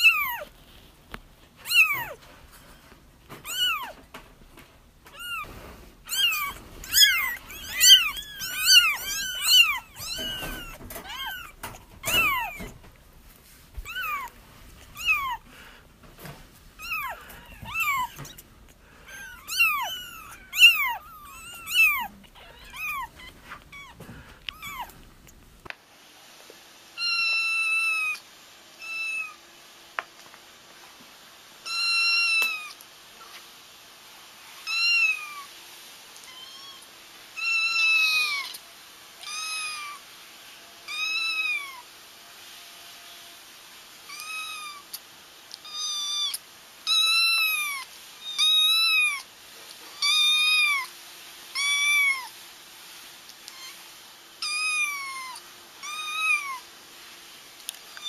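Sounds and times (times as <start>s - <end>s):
kittens mewing: 0.0s - 0.6s, 1.6s - 4.2s, 5.0s - 13.0s, 13.8s - 25.6s.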